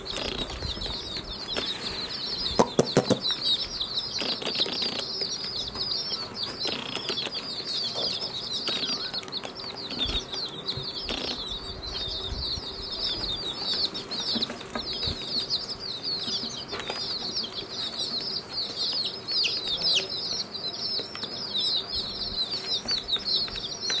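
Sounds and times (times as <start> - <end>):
baby chicks peeping: 0.0 - 24.0.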